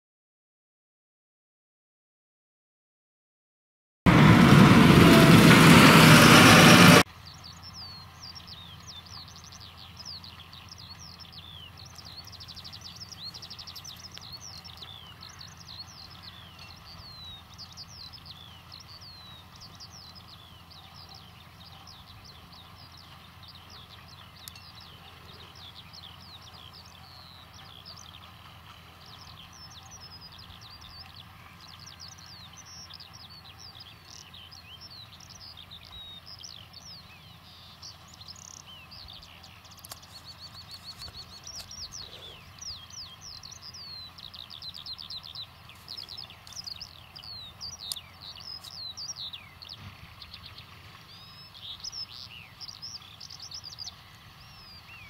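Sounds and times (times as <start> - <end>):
loud rushing noise: 4.1 - 7.0
birds chirping: 4.1 - 55.0
distant tractor engines humming: 4.1 - 55.0.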